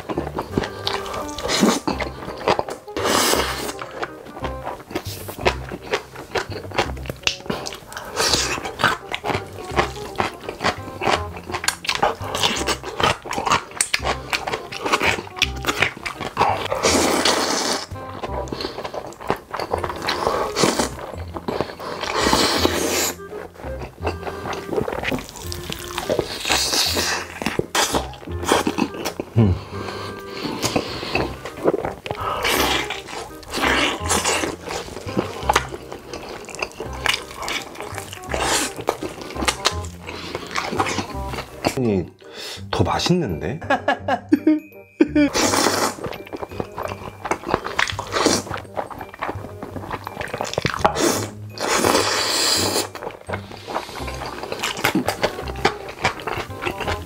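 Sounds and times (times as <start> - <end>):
cutlery and dishes clinking: 0.0 - 29.3, 30.4 - 41.8, 45.3 - 57.0
chewing and crunching: 0.0 - 42.7, 45.3 - 57.0
eating sounds: 0.0 - 43.0, 45.1 - 57.0.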